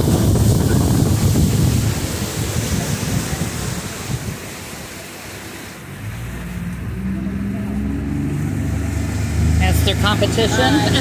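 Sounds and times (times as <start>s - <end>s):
wind buffeting microphone: 0.0s - 5.0s
outboard motor humming: 0.0s - 11.0s
water rushing past boat: 0.0s - 11.0s.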